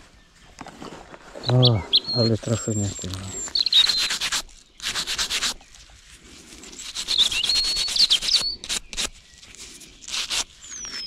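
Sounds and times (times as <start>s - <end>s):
small bird chirping: 1.4s - 6.0s, 6.6s - 11.0s
rubbing soil off metal: 3.0s - 5.6s, 6.2s - 11.0s.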